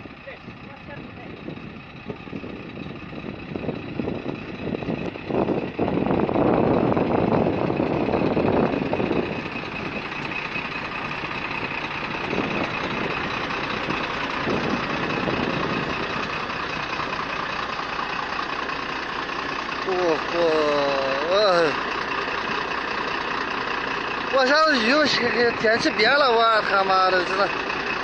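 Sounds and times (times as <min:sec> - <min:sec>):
wind noise on microphone: 0:00.0 - 0:10.4, 0:11.1 - 0:17.2
truck diesel engine idling: 0:00.0 - 0:28.0.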